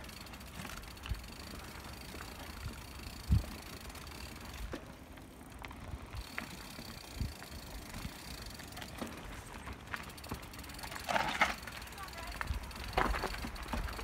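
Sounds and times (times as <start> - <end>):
bike tyres rolling on dirt: 0.0 - 14.0
bike knocks and rattles: 4.4 - 14.0.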